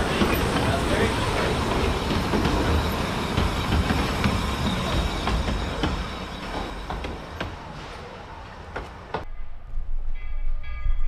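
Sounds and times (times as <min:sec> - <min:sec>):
train wheels rumbling on track: 0:00.0 - 0:09.3.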